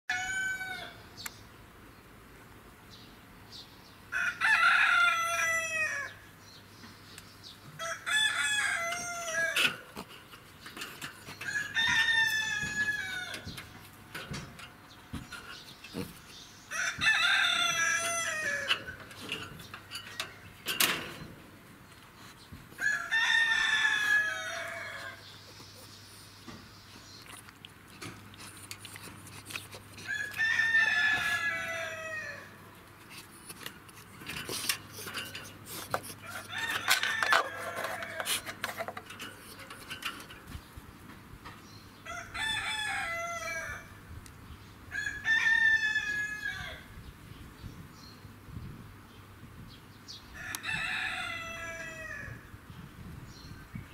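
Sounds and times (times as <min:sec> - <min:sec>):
rooster crowing: 0:00.1 - 0:01.0, 0:04.1 - 0:06.2, 0:07.8 - 0:09.8, 0:11.4 - 0:13.6, 0:16.7 - 0:18.9, 0:22.8 - 0:25.2, 0:30.1 - 0:32.6, 0:42.0 - 0:44.0, 0:44.9 - 0:46.9, 0:50.4 - 0:52.4.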